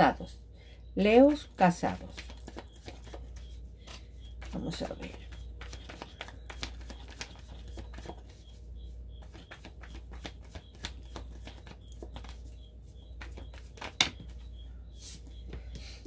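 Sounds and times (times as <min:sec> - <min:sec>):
cards being shuffled: 0:01.8 - 0:08.4, 0:09.2 - 0:12.5, 0:13.2 - 0:14.3.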